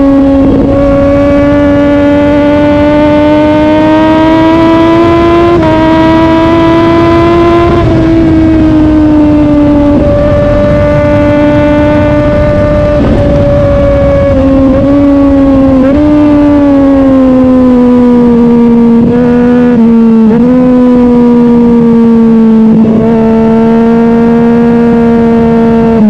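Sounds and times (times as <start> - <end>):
motorcycle engine at high revs: 0.0 - 26.0
low rushing noise: 5.6 - 19.2.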